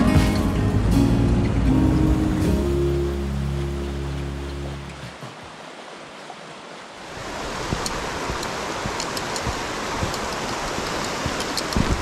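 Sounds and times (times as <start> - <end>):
rushing stream water: 0.0 - 12.0
footsteps on trail: 7.2 - 12.0
gear clicking: 7.7 - 12.0.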